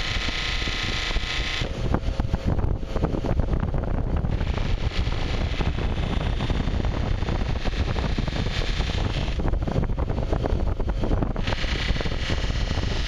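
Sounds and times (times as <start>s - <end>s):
bench buffer hum: 0.0s - 13.0s
blade hissing on buffing wheel: 4.3s - 9.5s, 11.4s - 13.0s.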